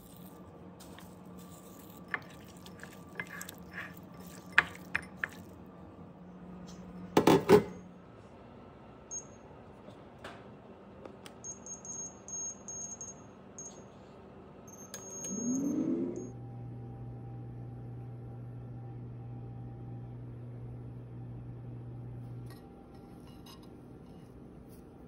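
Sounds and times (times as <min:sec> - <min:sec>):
air fryer short high beeps: 0:09.1 - 0:09.4, 0:11.4 - 0:13.8, 0:14.7 - 0:16.0.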